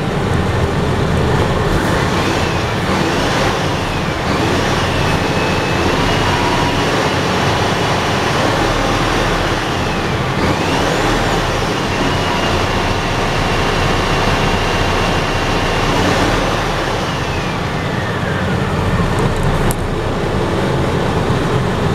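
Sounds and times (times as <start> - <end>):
diesel truck engine driving: 0.0 - 21.9.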